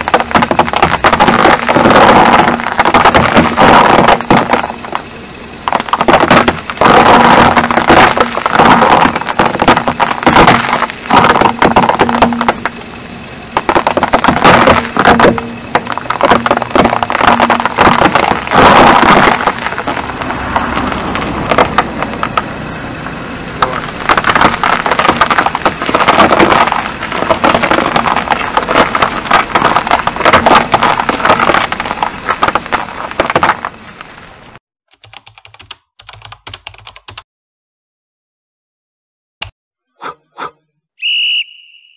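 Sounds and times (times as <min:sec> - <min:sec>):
sugar cubes crunching under tyre: 0:00.0 - 0:12.9, 0:13.5 - 0:22.5, 0:23.6 - 0:33.9.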